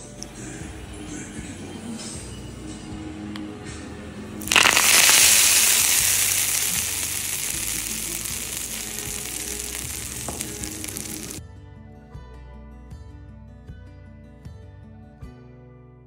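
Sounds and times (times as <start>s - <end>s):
hot oil sizzling: 4.4s - 11.4s.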